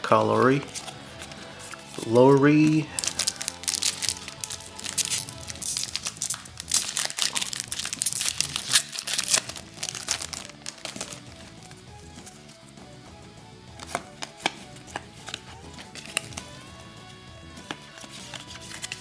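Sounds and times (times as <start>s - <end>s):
faint music: 0.0s - 19.0s
foil card pack crinkling and tearing: 1.7s - 11.3s, 15.2s - 16.6s, 17.9s - 19.0s.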